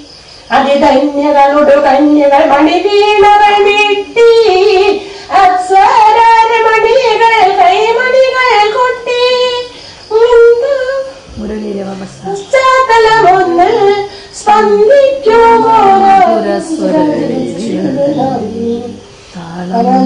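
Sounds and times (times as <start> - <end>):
woman singing a poem: 0.0 - 20.0.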